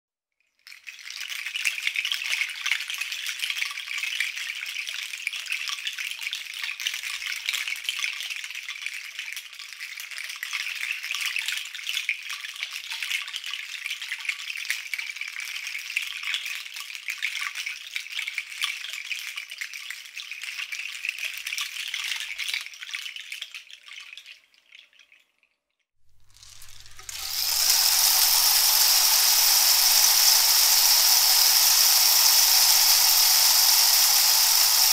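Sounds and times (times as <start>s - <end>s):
bead rattle shaking: 26.1s - 34.9s.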